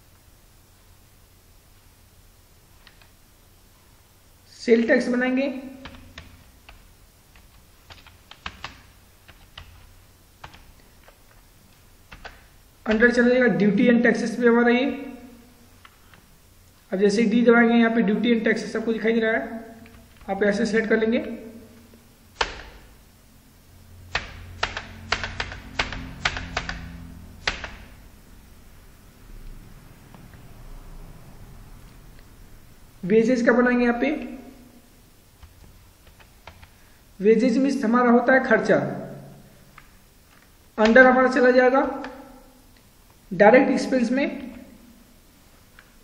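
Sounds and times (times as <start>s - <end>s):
faint low hum: 0.0s - 46.0s
quiet keyboard typing: 2.8s - 3.1s, 5.6s - 13.4s, 19.7s - 23.0s, 24.1s - 28.1s, 35.3s - 36.9s, 39.7s - 42.4s
keyboard keys clacking: 7.4s - 10.8s, 24.1s - 28.0s.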